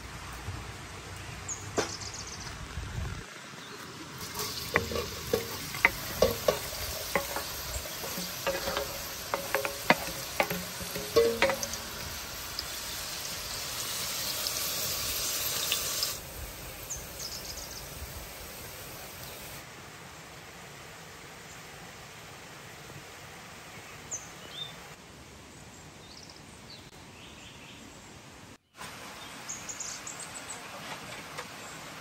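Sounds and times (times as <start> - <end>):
wooden spatula knocking on metal: 4.2 - 12.4
onions sizzling in hot oil: 4.2 - 19.6.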